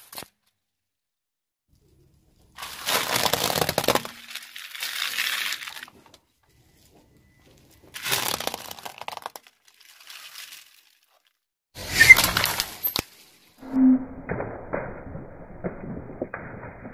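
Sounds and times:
foil crushed under car tyre: 2.5 - 6.2, 7.5 - 11.4.

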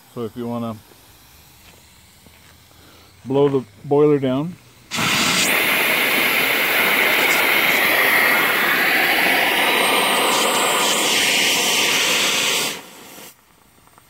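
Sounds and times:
steam rushing hiss: 0.0 - 14.0.

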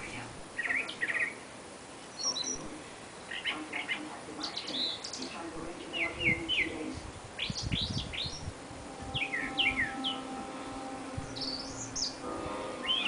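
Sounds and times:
small bird chirping: 2.1 - 10.4, 11.3 - 13.0.

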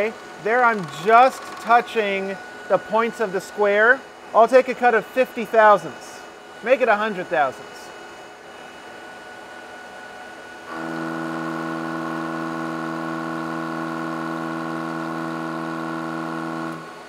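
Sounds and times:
lathe tool chopping steel: 0.0 - 3.6
lathe spindle running: 0.0 - 17.0.

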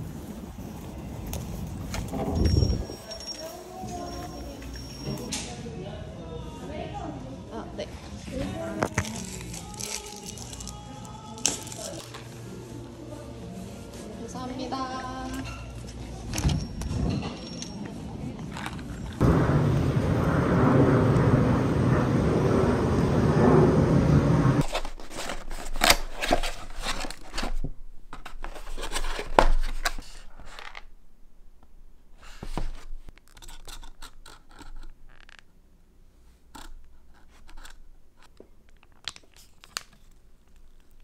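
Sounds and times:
loud steady rushing noise: 19.2 - 24.6
handling clicks scrapes and tearing: 24.6 - 27.6, 33.1 - 35.5, 36.5 - 41.0.

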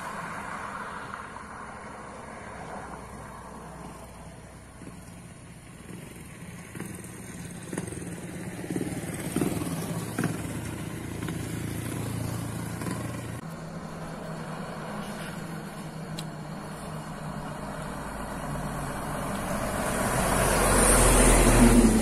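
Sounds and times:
motorcycle riding past: 2.4 - 22.0
truck engine running: 3.5 - 22.0.

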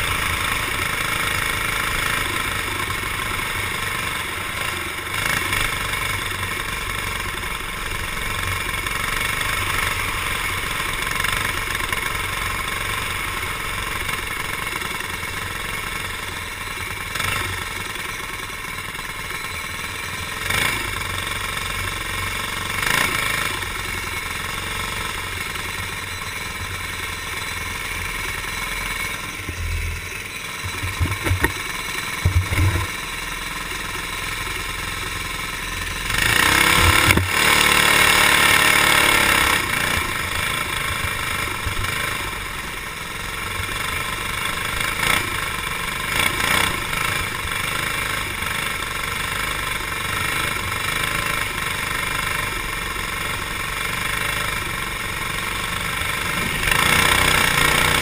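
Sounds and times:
racing kart engine running: 0.0 - 58.0
low thumps: 30.6 - 32.9.

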